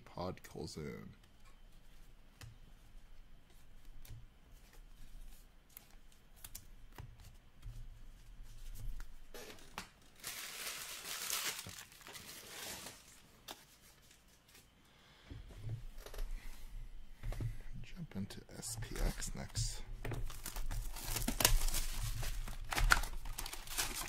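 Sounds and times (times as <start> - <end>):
trading cards and sleeves rustling: 8.2 - 14.8, 18.6 - 24.0
plastic wrapping crinkling and tearing: 9.4 - 14.6, 18.9 - 24.0.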